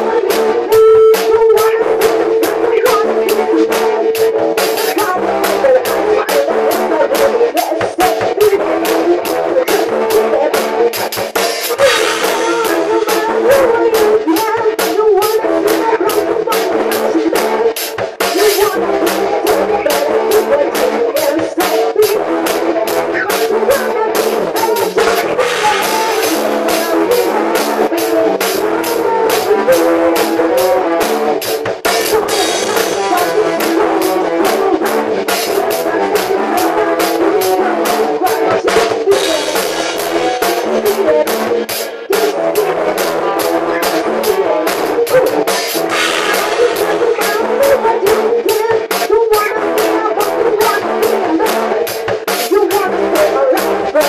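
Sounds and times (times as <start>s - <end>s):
drum kit beat: 0.0s - 54.0s
loud droning music: 41.8s - 54.0s
cymbal strikes: 45.8s - 46.9s.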